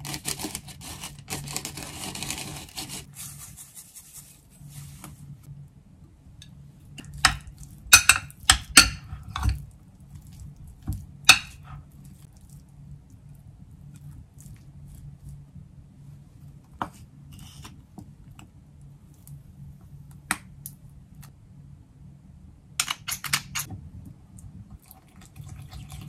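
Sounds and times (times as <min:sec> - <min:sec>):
hand grinder grinding seeds: 0:00.0 - 0:03.1.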